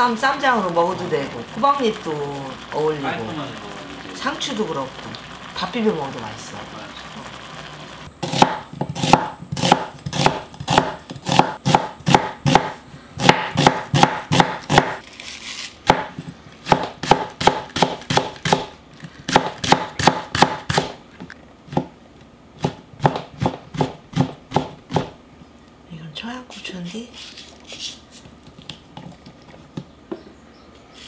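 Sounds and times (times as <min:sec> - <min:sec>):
knife chopping on wooden board: 0:08.2 - 0:15.0, 0:15.8 - 0:21.0, 0:21.7 - 0:21.9, 0:22.6 - 0:25.2.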